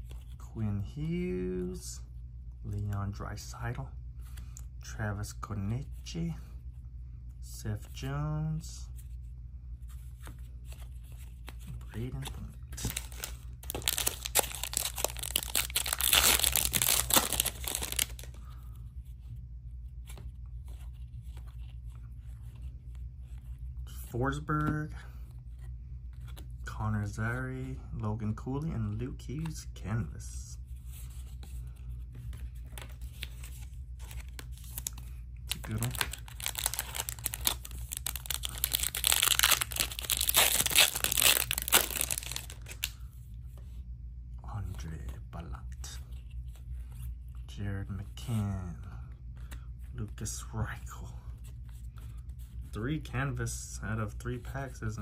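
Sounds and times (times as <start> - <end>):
cards being leafed through: 10.0 - 18.6, 30.9 - 43.0
foil wrapper tearing and crinkling: 12.9 - 18.3, 35.5 - 42.8.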